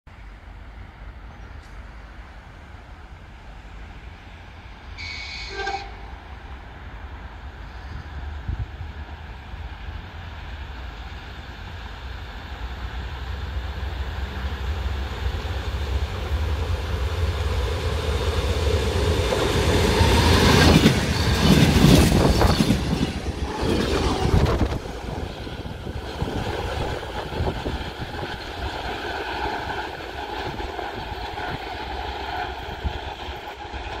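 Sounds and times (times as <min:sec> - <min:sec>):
diesel train passing: 0:00.1 - 0:34.0
train wheels clickety-clack: 0:16.9 - 0:34.0.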